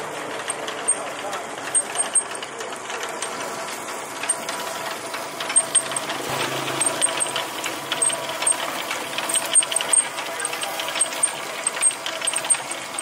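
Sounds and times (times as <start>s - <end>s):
chain drive rattling and clicking: 0.0s - 13.0s
rotisserie motor hum: 0.0s - 13.0s
lower hum: 6.1s - 8.1s.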